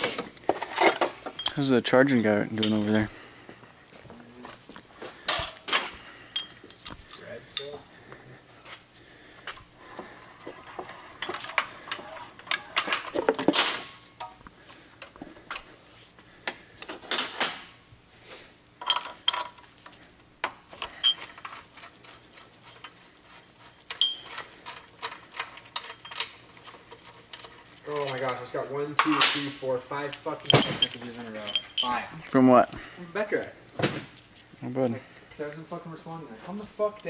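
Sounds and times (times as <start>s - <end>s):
metal tools clinking and rattling: 0.0s - 3.1s, 5.3s - 7.9s, 10.6s - 14.4s, 16.4s - 17.7s, 18.8s - 19.9s, 20.8s - 32.1s
metal scraping: 20.9s - 32.1s.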